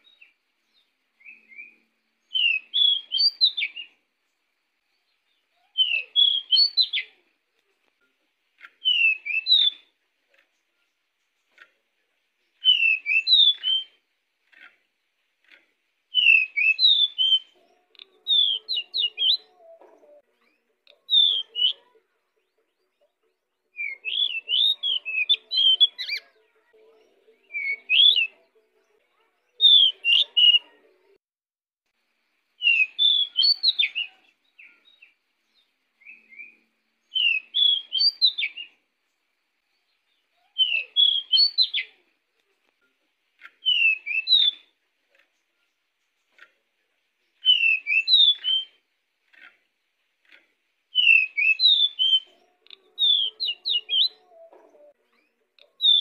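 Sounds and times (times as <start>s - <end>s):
bird singing whistled notes: 0.0s - 4.0s, 5.0s - 7.1s, 8.8s - 10.0s, 12.5s - 14.0s, 16.1s - 19.8s, 20.4s - 21.9s, 23.7s - 26.2s, 27.4s - 28.4s, 29.5s - 30.6s, 32.6s - 38.8s, 39.8s - 42.0s, 43.6s - 44.8s, 47.2s - 48.9s, 50.9s - 56.0s.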